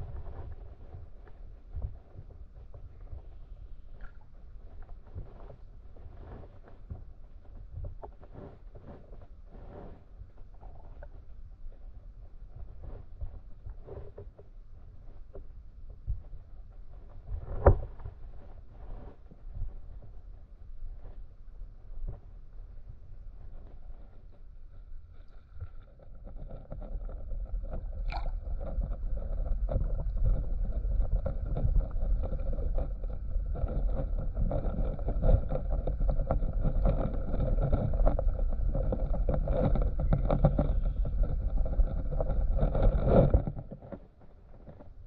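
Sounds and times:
underwater stream rumble and gurgling: 0:22.0 - 0:45.0.

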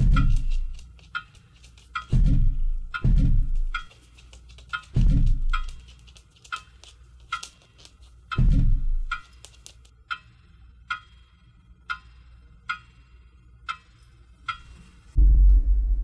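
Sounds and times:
clock ticking: 0:00.0 - 0:14.9
deep low boom: 0:15.2 - 0:16.0.

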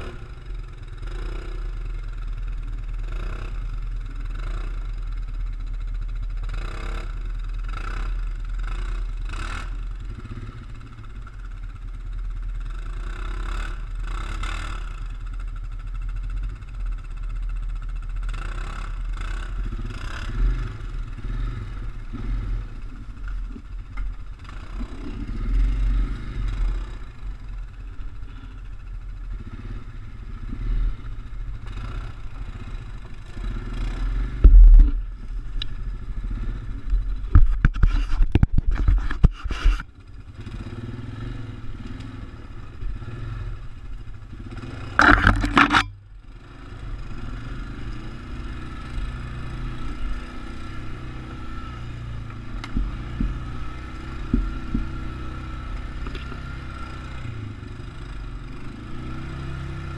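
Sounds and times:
atv engine rumbling: 0:00.0 - 0:59.9
loud knocks and scrapes: 0:37.3 - 0:39.8, 0:44.9 - 0:45.9.

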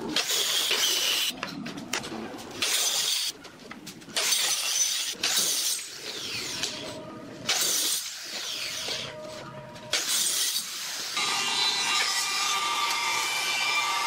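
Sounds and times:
circular saw cutting wood: 0:09.9 - 0:14.0.

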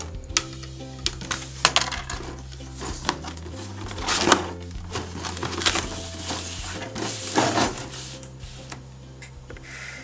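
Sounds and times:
cardboard box scraping on floor: 0:02.3 - 0:08.7.

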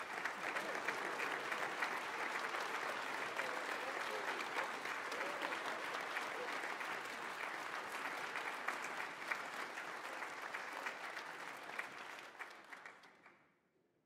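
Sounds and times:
audience applauding: 0:00.0 - 0:13.4.

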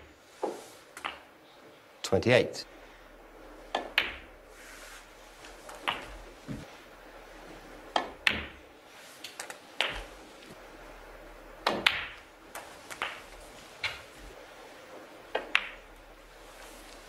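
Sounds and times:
snooker balls clicking: 0:00.4 - 0:01.3, 0:03.7 - 0:04.3, 0:05.4 - 0:06.7, 0:07.8 - 0:08.6, 0:09.2 - 0:10.6, 0:11.6 - 0:14.4, 0:15.3 - 0:16.0.

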